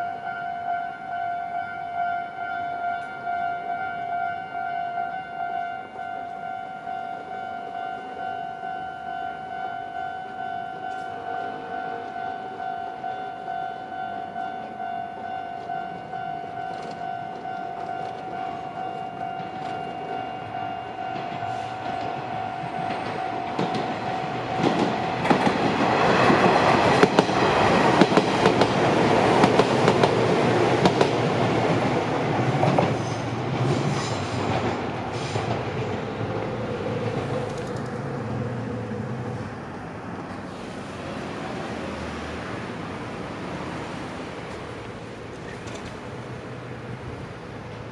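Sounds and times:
level crossing alarm dinging: 0.0s - 25.5s
train wheels clattering over rail joints: 21.1s - 31.8s.

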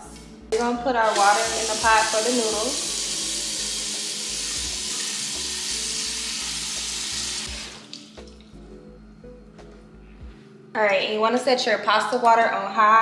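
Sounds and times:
faint background music with beat: 0.0s - 13.0s
faucet filling pot with water: 1.0s - 8.3s.

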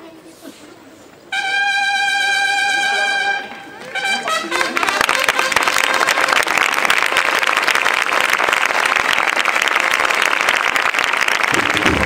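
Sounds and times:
crowd applauding: 3.8s - 12.0s.

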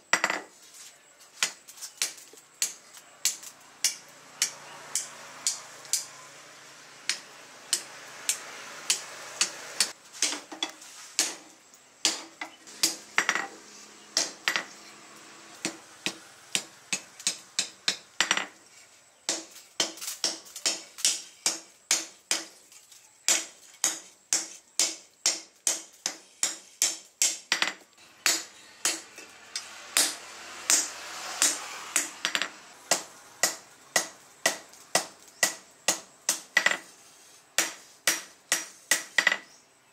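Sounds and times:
hammer striking hot steel on anvil: 1.4s - 6.1s, 7.1s - 10.4s, 11.2s - 13.5s, 23.3s - 36.9s, 37.6s - 39.4s.

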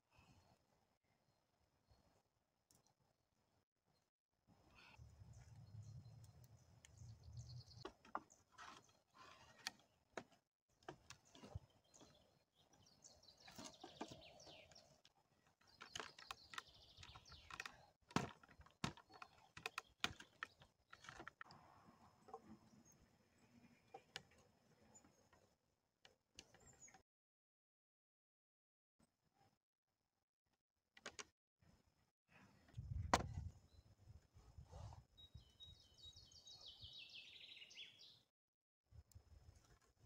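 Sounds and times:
birds chirping: 10.7s - 21.5s, 35.1s - 38.2s
wooden poles knocking: 17.0s - 21.4s.

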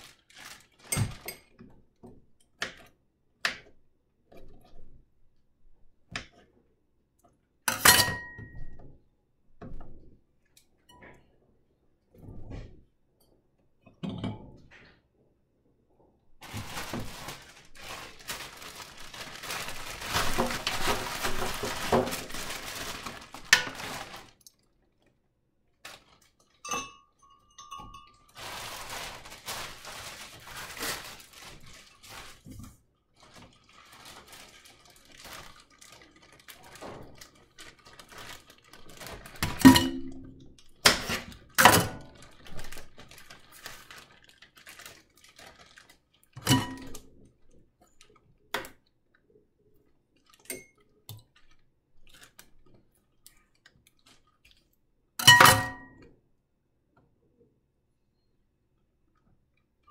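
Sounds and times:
fruit and glass knocking and clinking: 26.6s - 28.8s, 55.2s - 56.0s.

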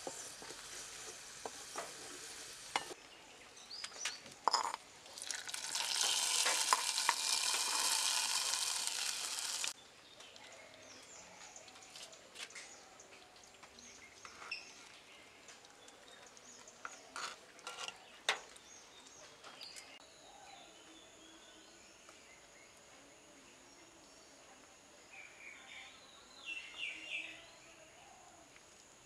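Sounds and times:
metal spoon stirring in pot: 4.5s - 9.7s, 16.9s - 18.1s.

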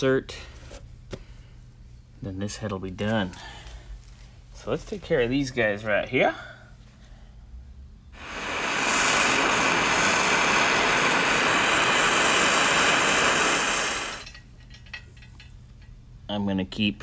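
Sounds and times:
gas torch hissing: 8.1s - 14.4s.

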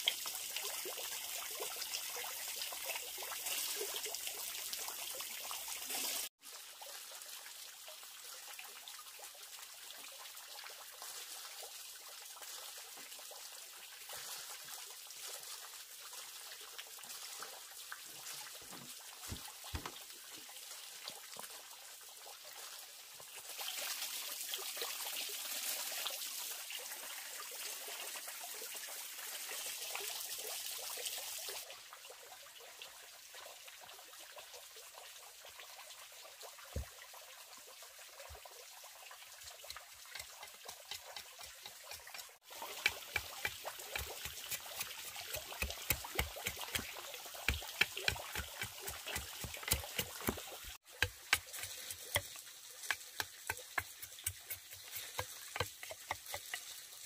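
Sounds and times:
water trickling into pond: 0.0s - 57.0s
knife chopping bamboo: 18.7s - 20.0s, 42.8s - 46.9s, 47.5s - 56.5s.

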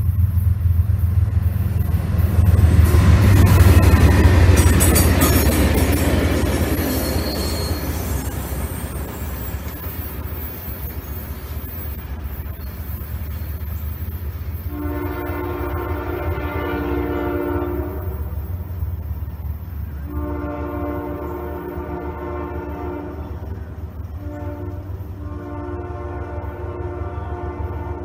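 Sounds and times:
locomotive horn blasts: 14.6s - 18.7s, 20.0s - 28.0s.

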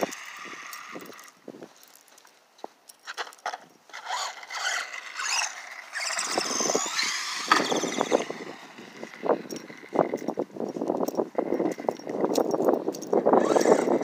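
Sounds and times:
toy truck electric motor whine: 0.0s - 1.4s, 3.9s - 10.4s, 13.3s - 14.0s
toy truck tumbling on concrete: 0.0s - 1.4s, 3.0s - 10.6s, 11.2s - 14.0s.

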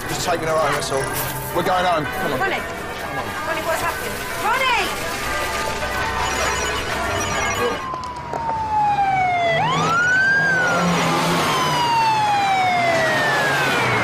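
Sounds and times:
police siren wailing: 4.4s - 14.0s.

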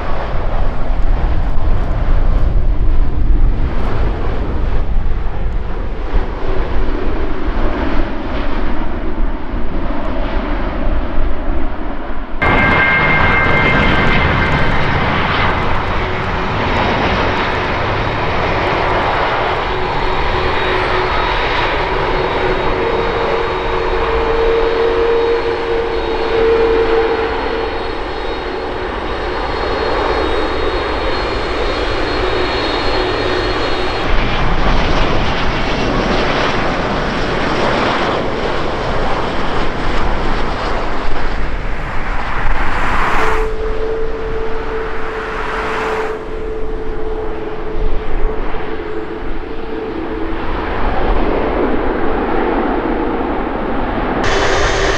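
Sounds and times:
airliner engines landing: 0.0s - 54.9s
steady humming tones: 43.4s - 54.9s.

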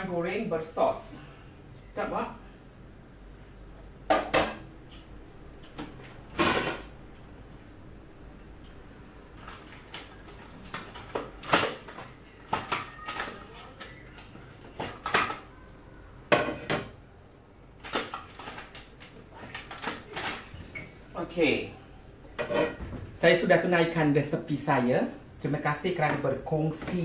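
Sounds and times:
crockery and cutlery clattering: 22.4s - 23.0s.

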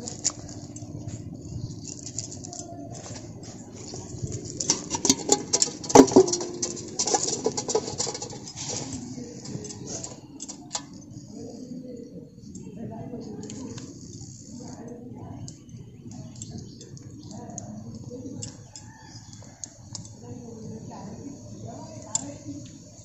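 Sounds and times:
net weights tapping on bricks: 4.4s - 9.9s.

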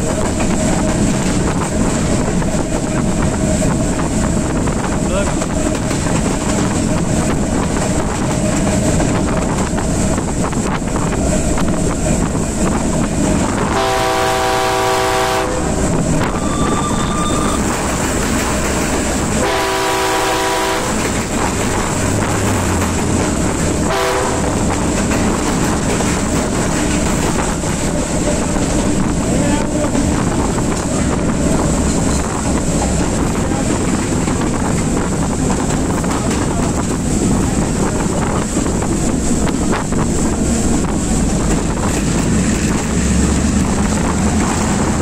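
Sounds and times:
diesel locomotive running: 0.0s - 45.0s
train horn blowing: 13.6s - 17.7s, 19.3s - 21.2s, 23.8s - 24.7s.

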